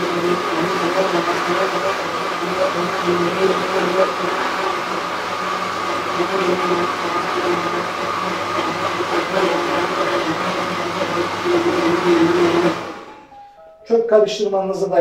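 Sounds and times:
blender motor running: 0.0 - 13.2.

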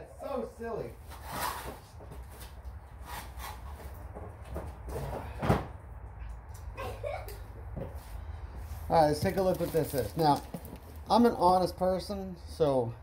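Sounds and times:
cardboard rustling and scraping: 1.0 - 5.2, 8.7 - 11.0.

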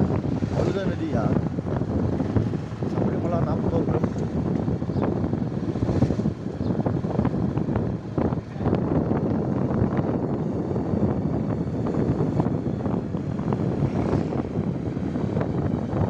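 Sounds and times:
motorcycle running: 0.0 - 16.0
road noise: 0.0 - 16.0
wind buffeting microphone: 0.0 - 16.0.

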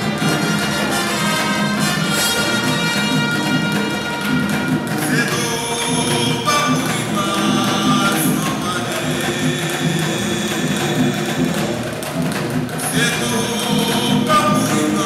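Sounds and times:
music with singing: 4.7 - 11.9, 12.8 - 15.0.

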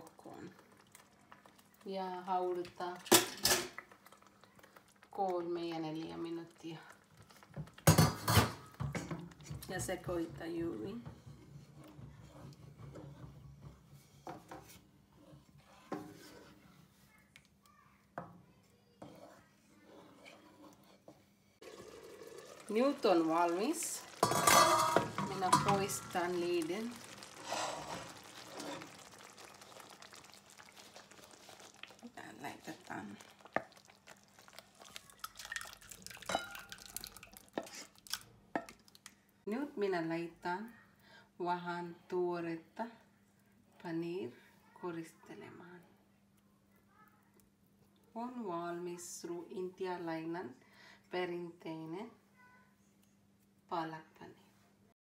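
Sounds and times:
wooden spatula scraping a pan: 8.9 - 17.1, 19.0 - 21.6, 22.7 - 35.2, 37.5 - 38.0
wet plops of curry: 23.3 - 39.2.

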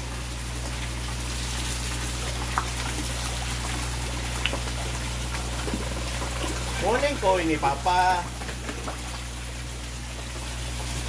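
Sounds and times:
low steady hum: 0.0 - 11.0
water pouring into pond: 0.0 - 11.0.

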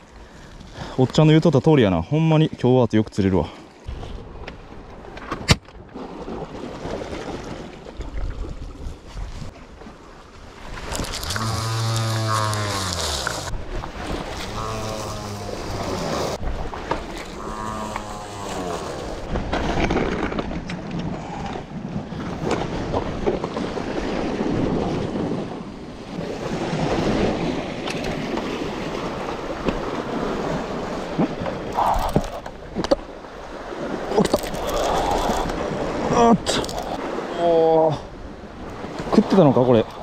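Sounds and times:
sea surf washing over rocks: 10.0 - 20.6.

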